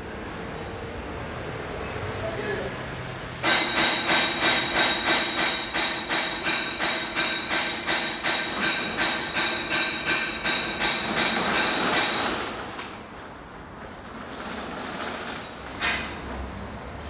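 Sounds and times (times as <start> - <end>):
metal roller shutter rattling: 14.1 - 16.1.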